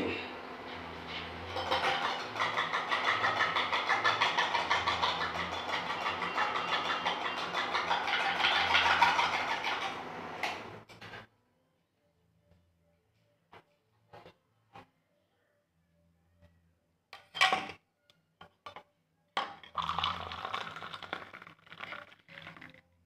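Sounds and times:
coffee being whipped in a glass: 1.6s - 10.0s, 19.7s - 22.8s.

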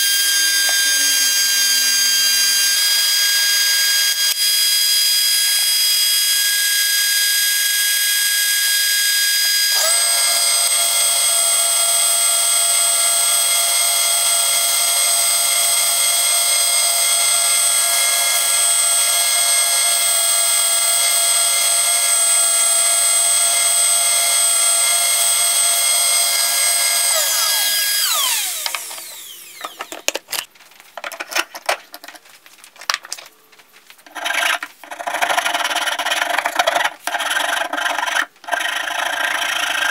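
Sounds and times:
spindle sander whining: 0.0s - 30.5s.

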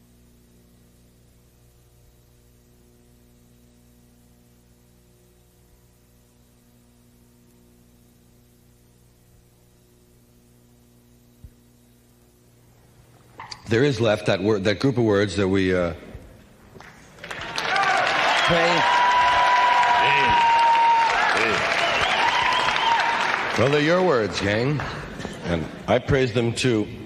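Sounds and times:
light hiss: 0.0s - 13.8s
electrical mains hum: 0.0s - 27.0s.

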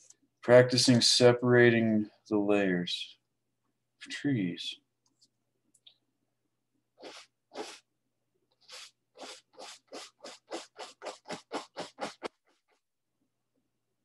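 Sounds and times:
brush scratching on canvas: 7.0s - 7.9s, 8.6s - 12.8s.

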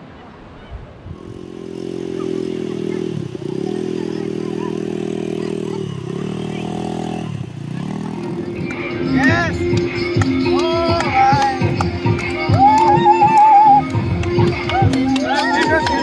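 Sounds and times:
quad bike engine revving: 1.0s - 12.8s.

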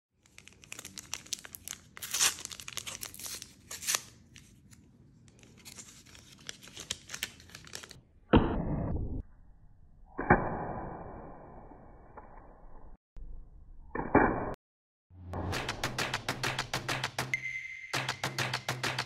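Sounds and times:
foil pack tearing and crinkling: 0.3s - 4.2s.

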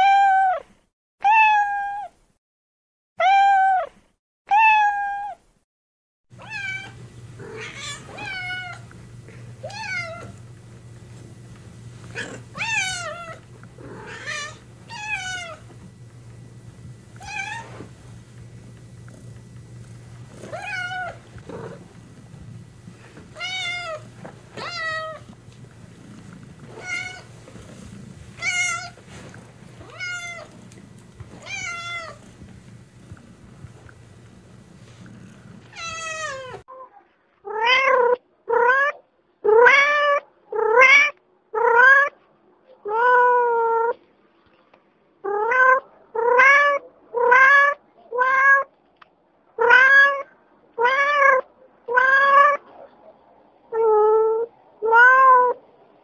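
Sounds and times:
steady low hum: 6.3s - 36.7s
cats meowing: 6.4s - 8.9s, 9.6s - 10.4s, 12.0s - 15.8s, 20.4s - 21.9s, 23.0s - 25.4s, 26.0s - 32.3s, 35.7s - 36.6s, 37.5s - 42.1s, 45.3s - 48.7s, 49.6s - 52.6s, 53.7s - 55.6s.

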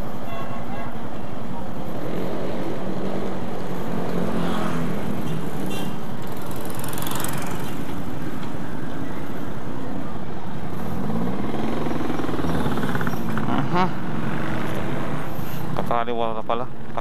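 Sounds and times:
wind and road noise: 0.0s - 17.0s.

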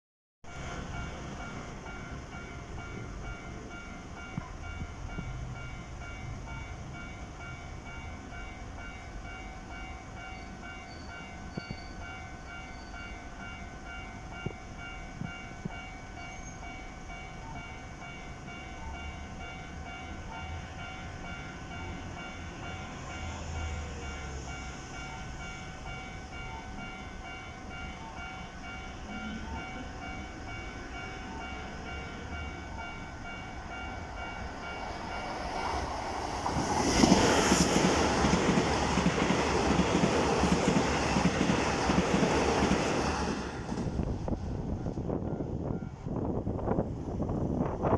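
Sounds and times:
electric train passing: 0.5s - 47.9s
level crossing alarm ringing: 0.7s - 36.2s.

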